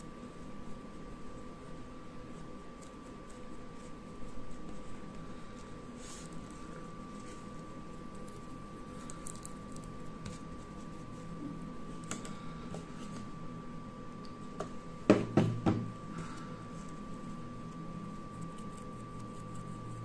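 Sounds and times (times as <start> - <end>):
knocks on table: 15.1 - 15.9.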